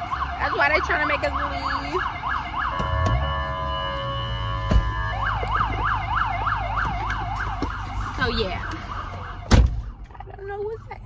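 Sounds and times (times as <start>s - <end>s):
siren yelping: 0.0s - 11.0s
thump: 9.5s - 9.8s.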